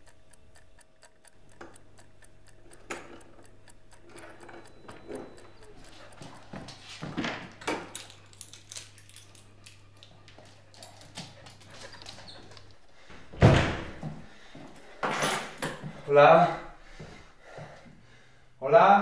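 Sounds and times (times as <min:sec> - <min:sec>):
footsteps on hard floor: 0:05.9 - 0:07.5.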